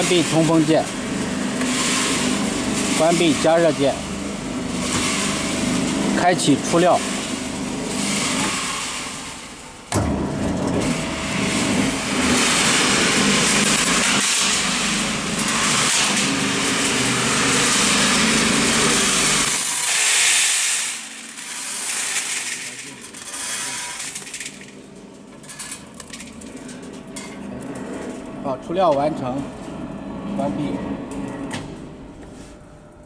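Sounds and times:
roaster motor humming: 0.0 - 33.0
grain pouring into steel bowl: 12.1 - 24.8.

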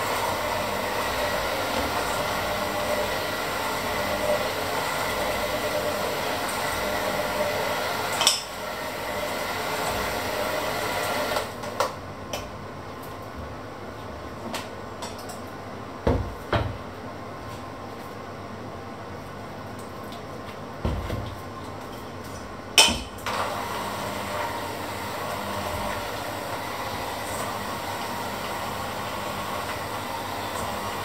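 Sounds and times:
electric hand mixer running: 0.0 - 11.8, 23.2 - 31.0.

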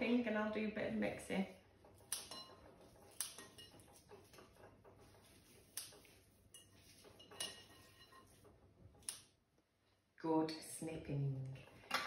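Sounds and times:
spoon clinking against glass bowl: 6.5 - 8.4.

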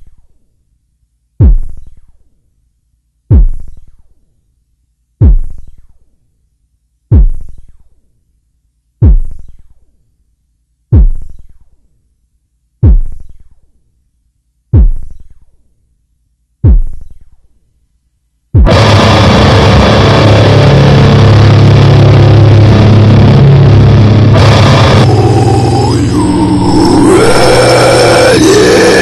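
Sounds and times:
drum machine kick with boom: 1.4 - 2.2, 3.3 - 4.1, 5.2 - 6.0, 7.1 - 7.9, 9.0 - 9.8, 10.9 - 11.7, 12.8 - 13.6, 14.7 - 15.5, 16.6 - 17.4, 18.5 - 19.4
loud industrial noise: 18.7 - 29.0.

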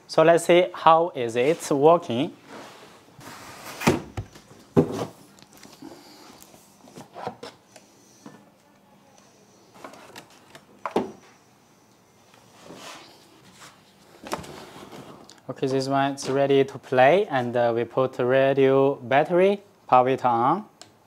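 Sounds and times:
cardboard packaging rustling: 12.6 - 15.3.

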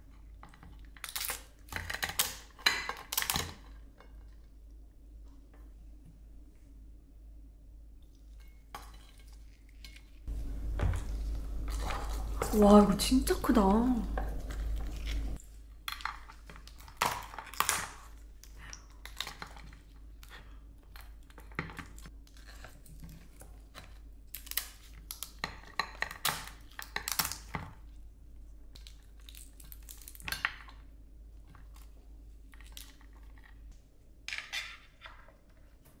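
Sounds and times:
blade cracking crab shell: 16.5 - 18.2, 24.3 - 27.5.

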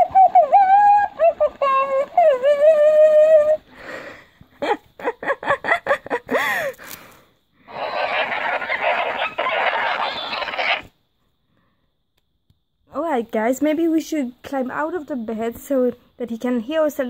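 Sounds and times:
plush toy singing: 0.0 - 3.6
squeaky toy chatter: 7.7 - 10.9.

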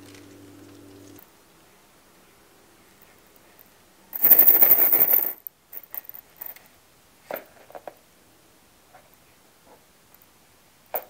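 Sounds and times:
foam beads rattling in glass bowl: 4.2 - 6.2.

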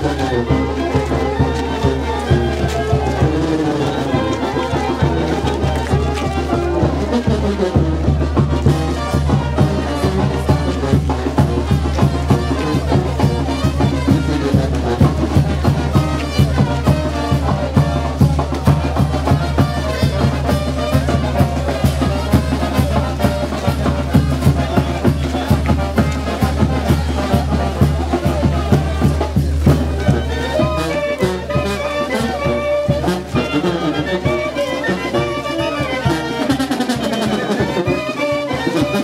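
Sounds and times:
brass band with drums: 0.0 - 39.0.

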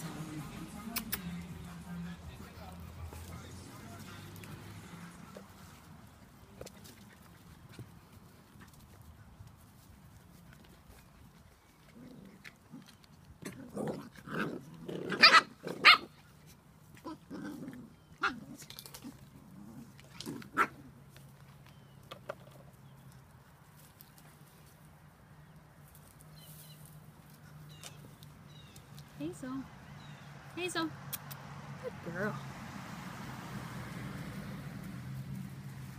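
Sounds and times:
puppies barking and yapping: 14.6 - 19.3.

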